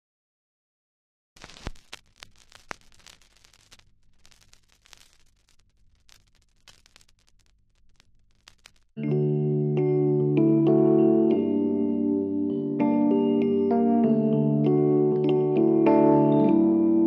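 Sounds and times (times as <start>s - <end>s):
crackling static with pops: 1.4s - 9.0s
keyboard chords music: 9.0s - 17.0s.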